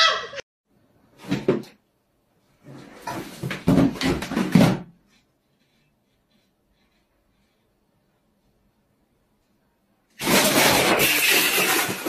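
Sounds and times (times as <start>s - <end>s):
objects scraping along wooden shelf: 10.2s - 12.0s.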